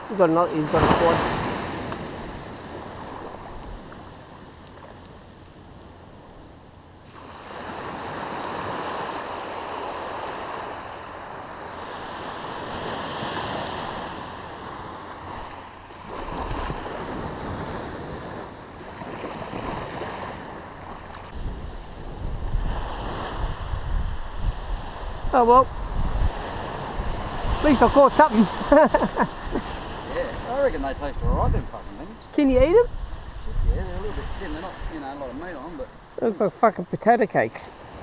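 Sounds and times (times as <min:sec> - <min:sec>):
surf washing on sandy beach: 0:00.0 - 0:36.8
wind buffeting microphone: 0:12.6 - 0:36.2.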